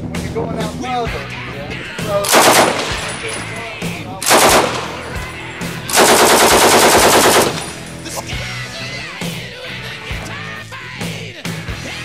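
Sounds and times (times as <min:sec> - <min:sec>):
machine gun firing bursts: 0:02.2 - 0:03.4, 0:04.2 - 0:08.0.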